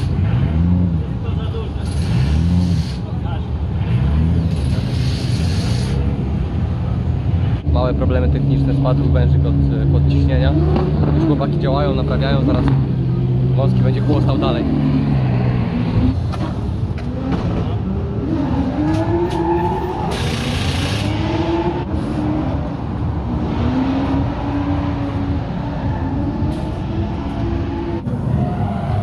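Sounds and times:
car engine revving: 0:00.0 - 0:29.0
tyre squeal: 0:18.8 - 0:21.3.

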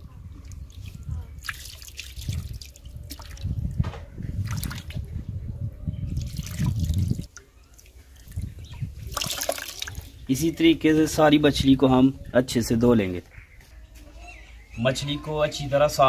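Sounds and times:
water splashing and dripping: 0:00.0 - 0:05.1, 0:06.1 - 0:10.3
water poured from jug: 0:00.4 - 0:03.7, 0:04.4 - 0:05.0, 0:06.2 - 0:10.2
hands rubbing fish in water: 0:00.5 - 0:03.5, 0:09.0 - 0:10.1.

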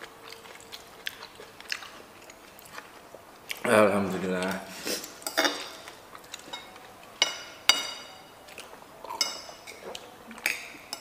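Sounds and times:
spoons and glass clinking on plates: 0:04.9 - 0:08.3, 0:09.1 - 0:11.0.

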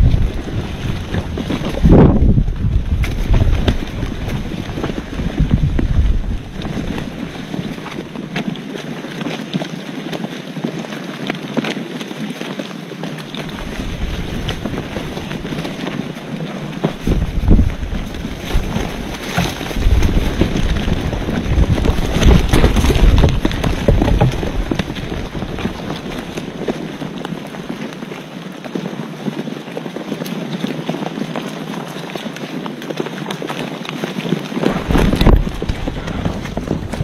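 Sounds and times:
wind buffeting the microphone: 0:00.0 - 0:09.4, 0:13.2 - 0:28.2, 0:33.8 - 0:37.0.

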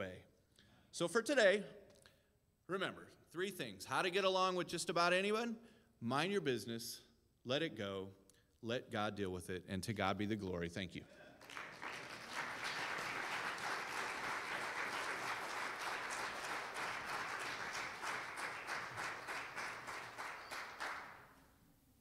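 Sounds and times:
congregation applauding: 0:11.4 - 0:21.5.

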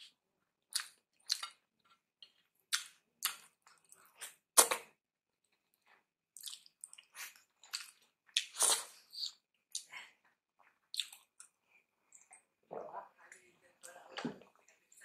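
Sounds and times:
wet lip smacks and chewing: 0:00.7 - 0:04.8, 0:06.4 - 0:10.0, 0:10.6 - 0:12.9.

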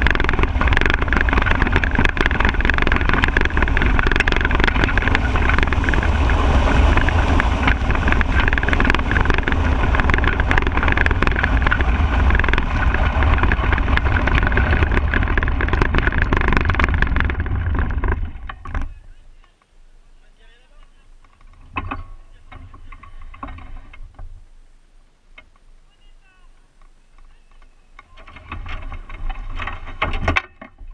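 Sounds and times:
chassis rattling and knocking: 0:00.0 - 0:18.9, 0:20.8 - 0:24.4, 0:27.6 - 0:30.9
wind on microphone: 0:00.0 - 0:19.3
cart wheels rumbling on asphalt: 0:00.0 - 0:19.6, 0:20.5 - 0:24.5, 0:25.3 - 0:30.9.

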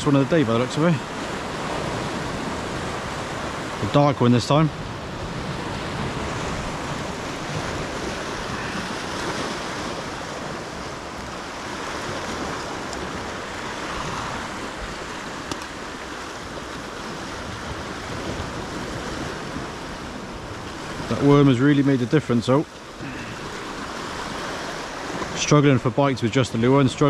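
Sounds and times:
surf breaking against rocks: 0:00.0 - 0:27.0
wind on microphone: 0:04.6 - 0:21.3.

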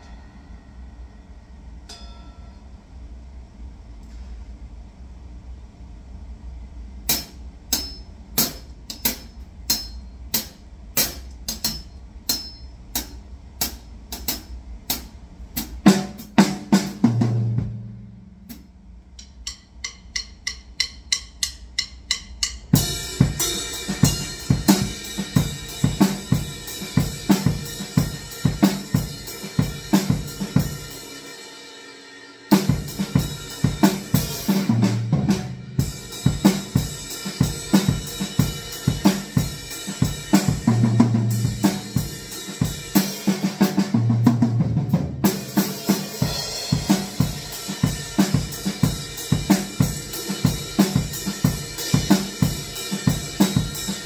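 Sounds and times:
crashing cymbals: 0:00.0 - 0:02.7, 0:18.5 - 0:43.8, 0:45.2 - 0:54.0
low hum: 0:00.0 - 0:07.0
cymbal taps: 0:01.8 - 0:02.6, 0:07.1 - 0:15.1, 0:18.5 - 0:22.9
drum kit playing: 0:07.0 - 0:54.0.

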